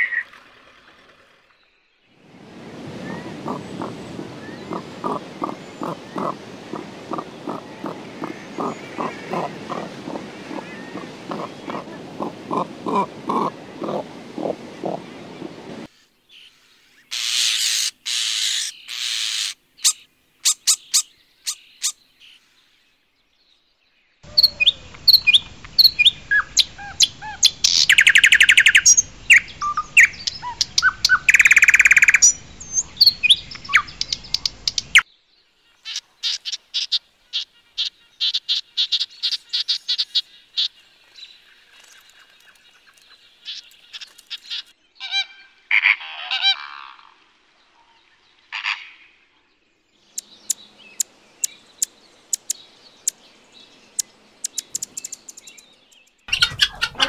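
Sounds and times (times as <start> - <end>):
songbirds chirping: 0.0 - 45.6, 47.2 - 57.0
rapid repeated bird notes: 2.5 - 15.9, 50.1 - 57.0
buzzing bird trills: 2.8 - 15.9
sharp bird ticks: 33.5 - 35.0, 50.2 - 53.2, 53.9 - 56.9.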